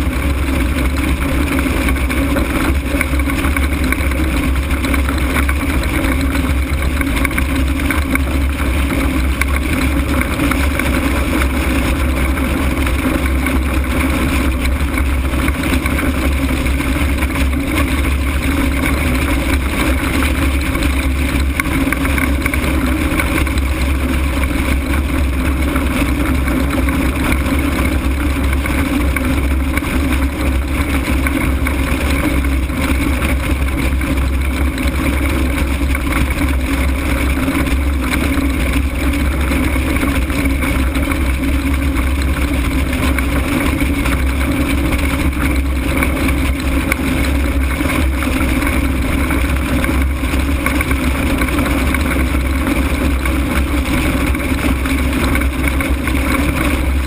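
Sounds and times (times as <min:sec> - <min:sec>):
wind rush and buffeting: 0:00.0 - 0:57.0.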